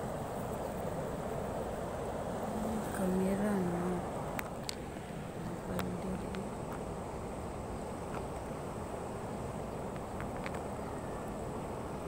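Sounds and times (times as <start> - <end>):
high insect drone: 0.0 - 12.0.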